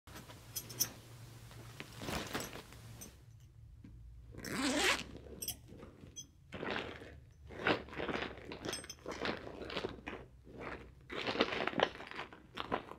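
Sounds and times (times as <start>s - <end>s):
handbag zipper pulled: 4.4s - 5.9s.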